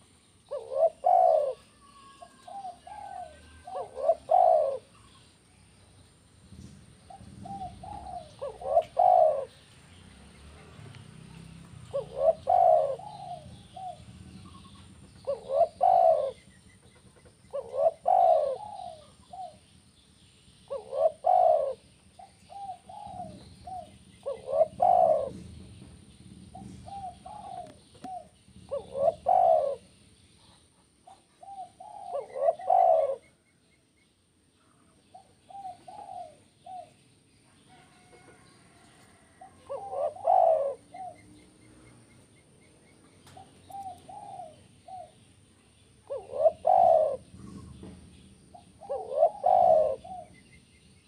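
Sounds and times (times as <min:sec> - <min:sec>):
dove cooing: 0:00.0 - 0:05.3, 0:06.6 - 0:09.7, 0:11.2 - 0:19.7, 0:20.7 - 0:33.4, 0:35.1 - 0:37.0, 0:37.7 - 0:42.1, 0:43.2 - 0:45.2, 0:46.0 - 0:47.9, 0:48.5 - 0:50.4.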